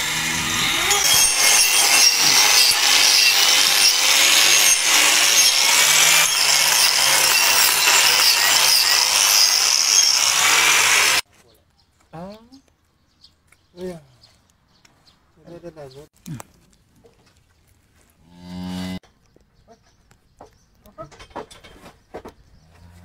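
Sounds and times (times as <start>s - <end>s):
power tool grinding hoof: 0.0s - 11.3s.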